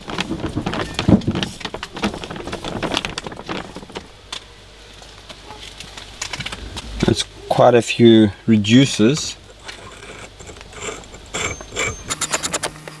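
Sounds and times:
hands rustling: 0.0s - 7.2s.

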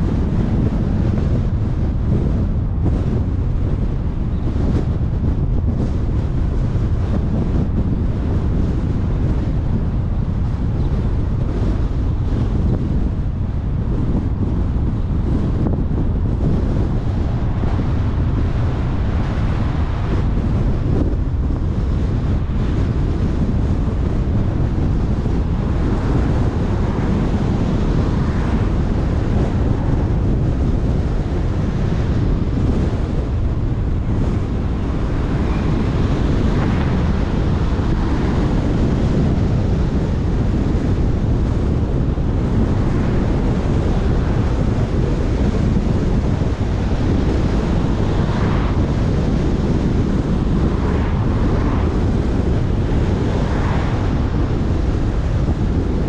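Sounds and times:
car road rumble: 0.0s - 56.0s
wind buffeting microphone: 0.0s - 56.0s.

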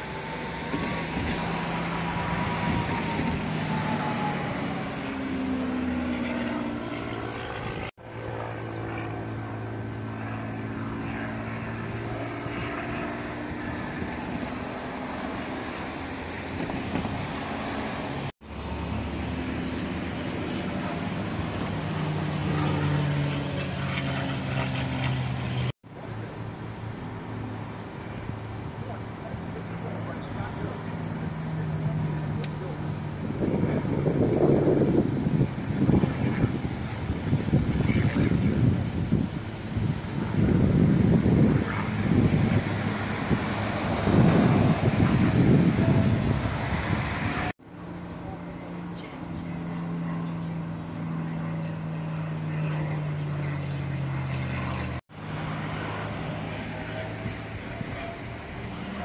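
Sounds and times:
aircraft engine droning overhead: 0.0s - 59.0s.

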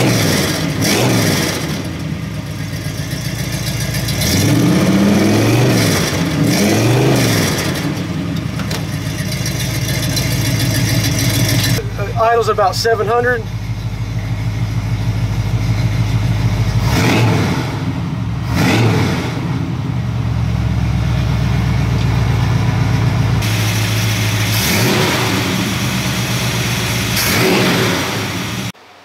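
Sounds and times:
engine revving: 0.0s - 28.8s
car engine idling: 0.0s - 29.0s.

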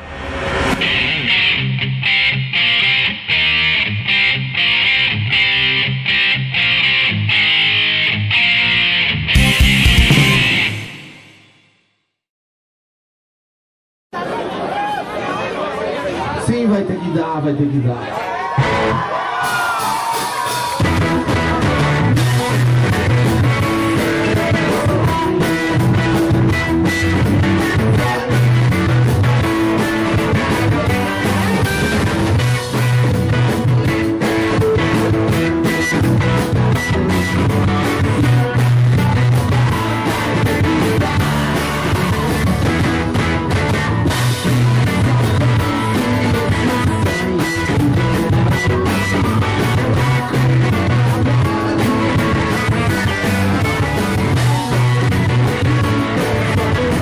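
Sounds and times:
electric guitar: 0.0s - 11.5s, 18.5s - 57.0s
bass guitar: 0.0s - 11.6s, 18.5s - 57.0s
drums: 0.0s - 11.7s, 18.4s - 57.0s
person singing: 20.8s - 32.0s, 36.4s - 43.0s, 44.5s - 57.0s.

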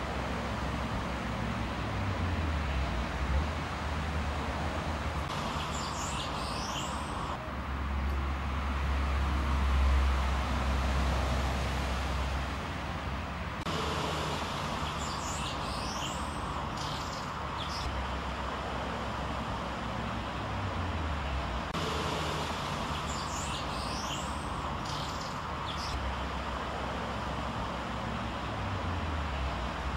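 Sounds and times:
small birds twittering: 5.2s - 7.4s, 14.5s - 18.2s, 22.6s - 26.3s.

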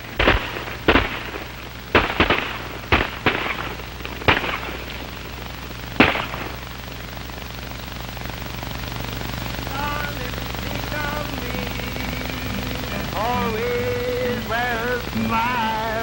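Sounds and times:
gunshots: 0.0s - 7.2s
film soundtrack hum and hiss: 0.0s - 16.0s.

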